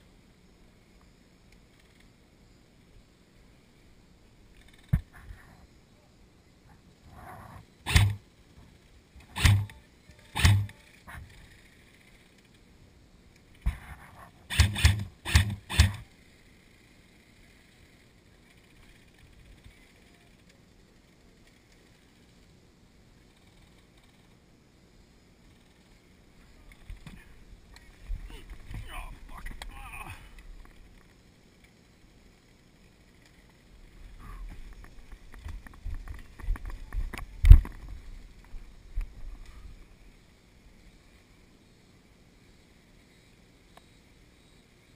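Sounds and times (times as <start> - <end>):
airsoft gun bursts: 7.8 - 8.2, 9.3 - 11.0, 14.5 - 16.1.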